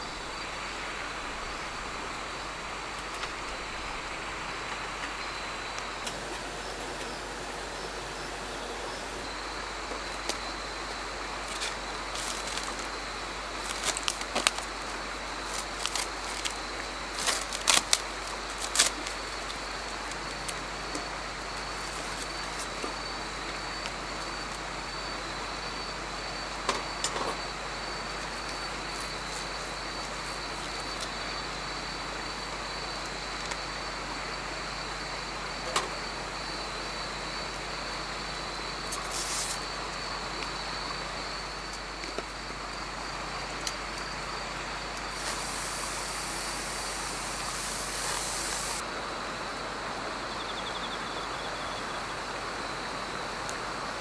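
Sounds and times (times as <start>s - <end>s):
insects chirring: 6.1s - 9.2s.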